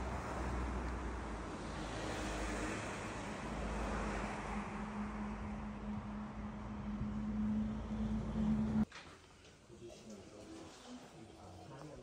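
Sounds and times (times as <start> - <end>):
steady engine hum: 0.0 - 8.8.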